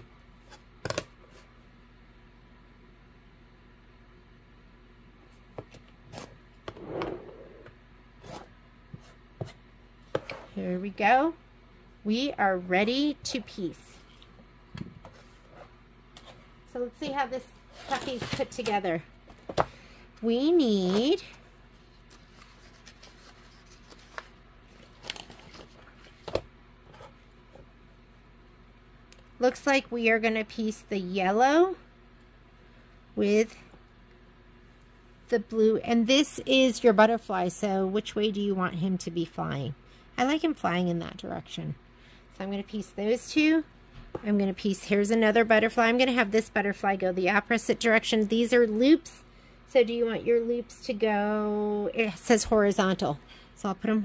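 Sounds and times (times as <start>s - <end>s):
ruler and fabric sliding on mat: 6.1s - 9.6s
pages rustling: 21.8s - 27.1s.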